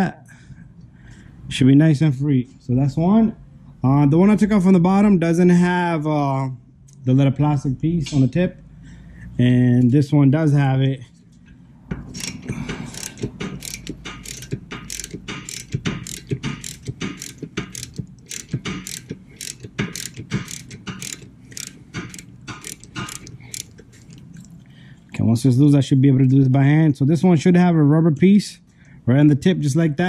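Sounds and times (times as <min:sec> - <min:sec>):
ratchet clicking: 0:12.0 - 0:23.8.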